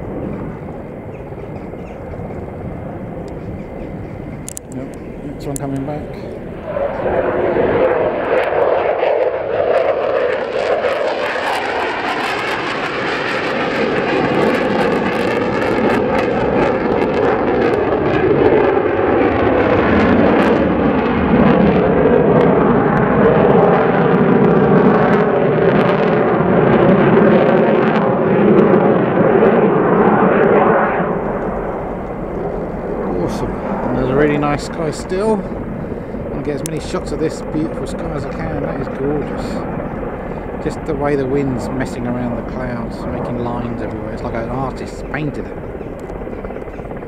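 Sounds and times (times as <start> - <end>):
fighter jet engines roaring: 0.0 - 47.0.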